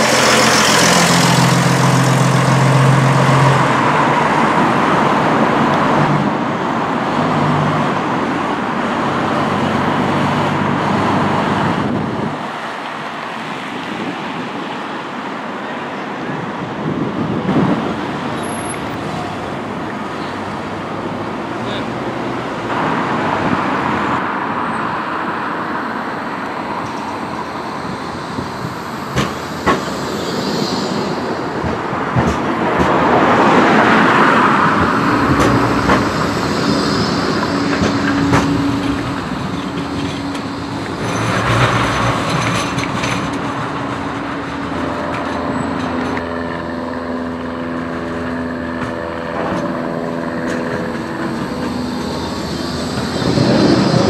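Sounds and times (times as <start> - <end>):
car passing: 0.0 - 12.3, 17.3 - 54.0
tram drive humming: 0.0 - 54.0
high whining tones: 26.9 - 32.2, 34.7 - 41.4, 49.2 - 54.0.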